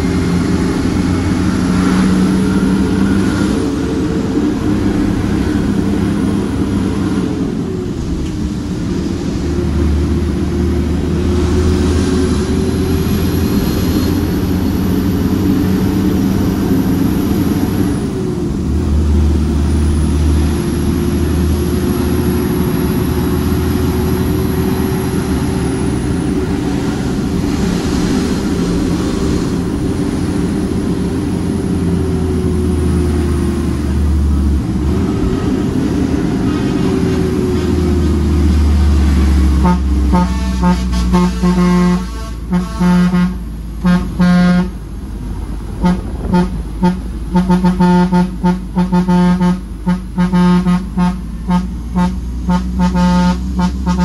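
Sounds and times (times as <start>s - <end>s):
high engine whistle: 0.0s - 3.8s, 39.5s - 44.8s, 45.8s - 54.0s
truck diesel engine running: 0.0s - 54.0s.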